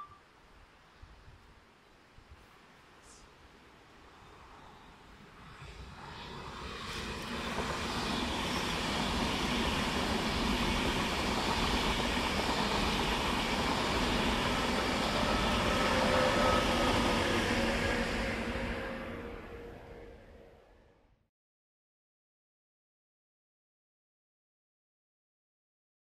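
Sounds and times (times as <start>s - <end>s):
train wheels rumbling on rails: 4.4s - 20.5s.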